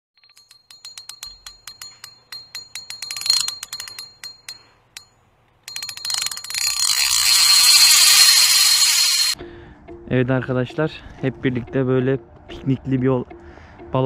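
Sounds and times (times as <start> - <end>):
bell-like ticks with ringing tone: 0.2 - 9.4.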